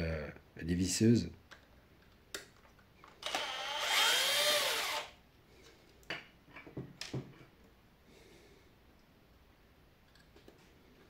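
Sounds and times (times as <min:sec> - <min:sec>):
cordless drill motor whine: 0:03.2 - 0:05.1.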